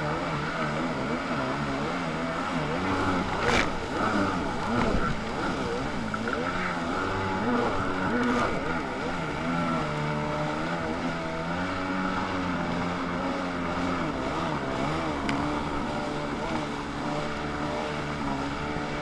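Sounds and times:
jet ski engine running: 0:00.0 - 0:19.0.

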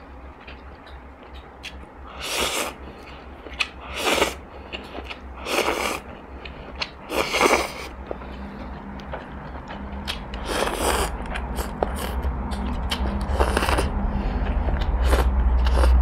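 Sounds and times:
wet chewing clicks: 0:02.8 - 0:13.9
noodles slurped: 0:03.5 - 0:06.1, 0:07.0 - 0:07.9, 0:10.4 - 0:13.9, 0:14.8 - 0:16.0.

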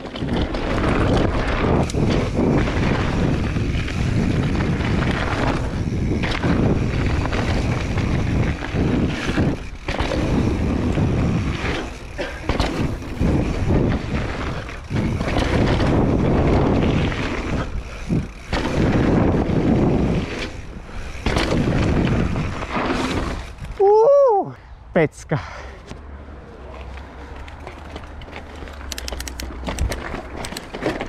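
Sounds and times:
wind buffeting microphone: 0:00.0 - 0:23.9
bike tyres rumbling on dirt: 0:00.0 - 0:24.4, 0:26.6 - 0:31.0
bike rattling: 0:00.0 - 0:24.5, 0:25.9 - 0:31.0.

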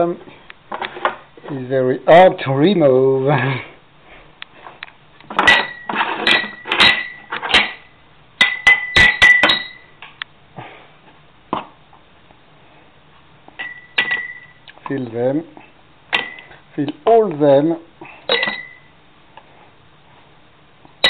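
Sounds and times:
glass jars knocking and clinking: 0:05.3 - 0:09.9, 0:13.6 - 0:14.6, 0:18.3 - 0:18.9
bright glass ring: 0:05.5 - 0:07.3, 0:08.4 - 0:10.0, 0:13.6 - 0:14.6, 0:18.3 - 0:18.9.

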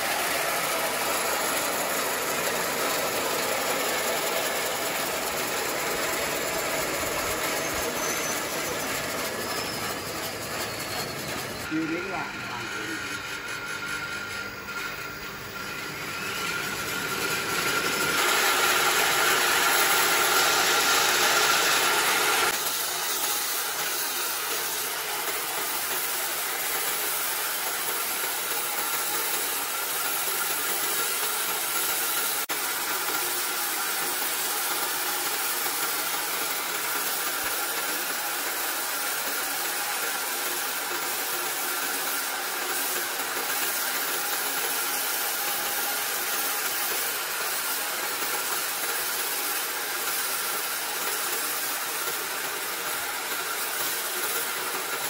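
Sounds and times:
band saw cutting logs: 0:00.0 - 0:55.0.

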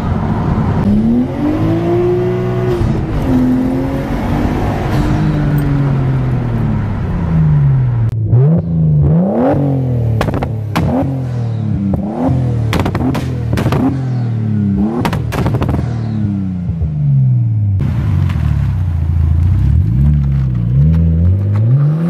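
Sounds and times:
car engine accelerating through gears: 0:00.4 - 0:18.3, 0:19.2 - 0:22.0
engine revving: 0:00.8 - 0:17.8, 0:19.6 - 0:22.0
exhaust cracks: 0:07.8 - 0:16.9, 0:17.8 - 0:21.9.

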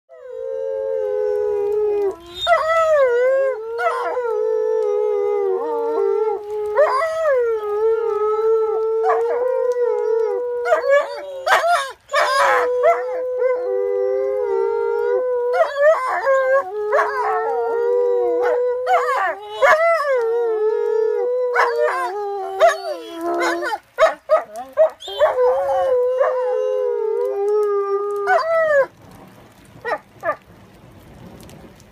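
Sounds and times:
dogs howling: 0:00.1 - 0:29.0
dog yips: 0:22.6 - 0:25.8.

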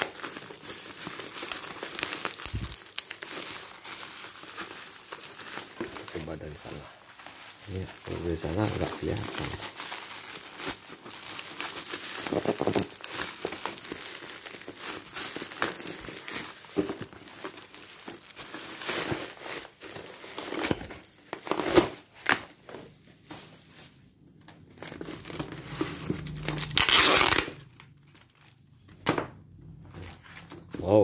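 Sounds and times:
bubble wrap crinkling: 0:00.0 - 0:28.9.

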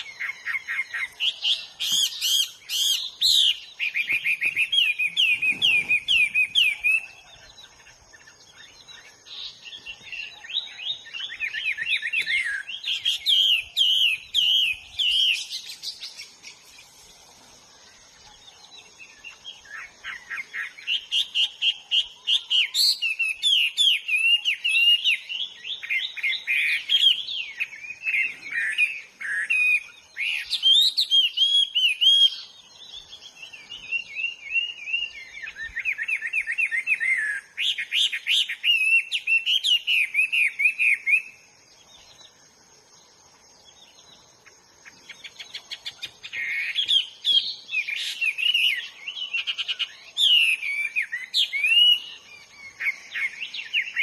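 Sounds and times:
bird singing whistled phrases: 0:00.0 - 0:07.5, 0:19.7 - 0:41.4, 0:45.2 - 0:54.0.

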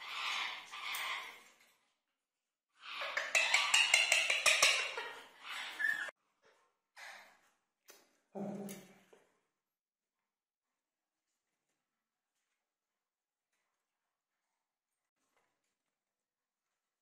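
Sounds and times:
parakeets chattering: 0:02.8 - 0:06.1.

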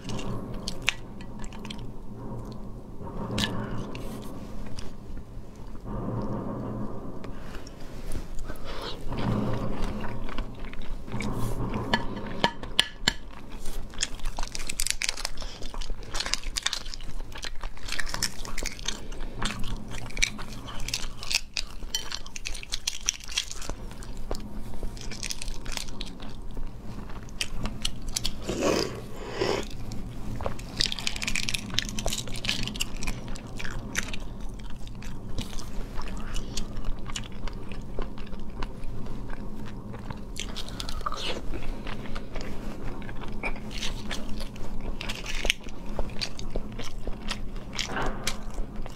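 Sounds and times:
steady low hum: 0:00.0 - 0:48.9
chewing: 0:08.8 - 0:48.9
eggshells crackling while peeled: 0:12.7 - 0:48.9.

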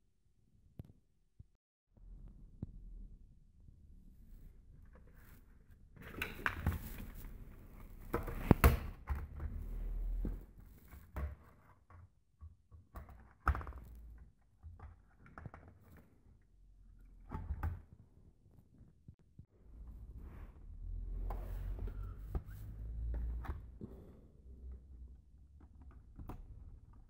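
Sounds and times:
electronics being handled: 0:04.7 - 0:12.1.

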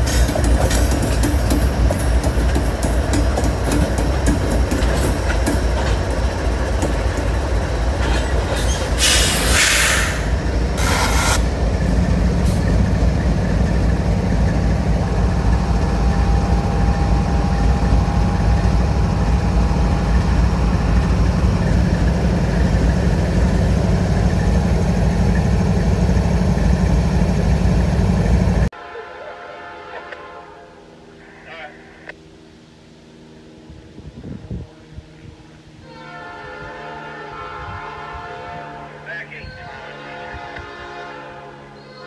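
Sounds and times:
locomotive engine rumble: 0:00.0 - 0:42.0
short bursts of hissing: 0:09.0 - 0:11.4.

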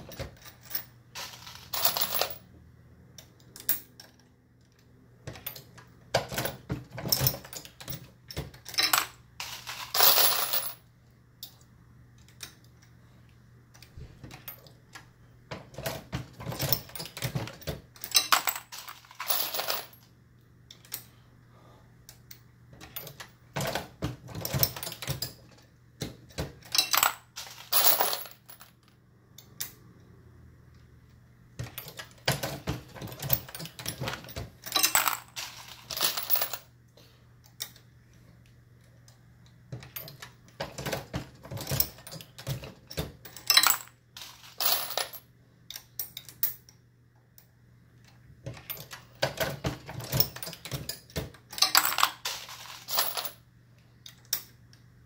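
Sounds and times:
faint steady hum: 0:00.0 - 0:55.0
metallic clinking of brass cases: 0:05.3 - 0:10.8, 0:15.6 - 0:20.0, 0:26.3 - 0:28.8, 0:31.6 - 0:36.7, 0:39.8 - 0:46.7, 0:48.5 - 0:53.4.

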